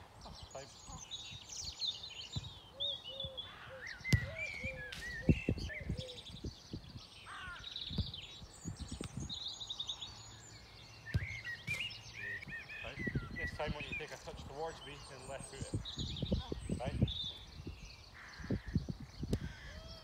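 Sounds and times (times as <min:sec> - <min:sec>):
birds chirping: 0:00.0 - 0:20.0
football being kicked: 0:04.1 - 0:05.1, 0:11.1 - 0:11.9.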